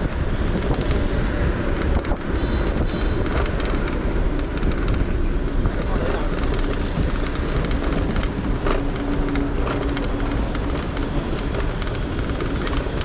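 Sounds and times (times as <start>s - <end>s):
tyre and wind road noise: 0.0s - 13.0s.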